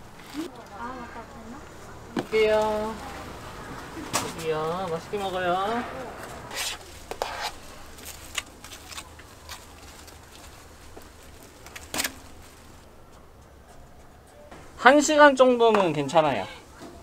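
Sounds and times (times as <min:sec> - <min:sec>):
metal spatula scraping a tray: 0:06.5 - 0:07.6.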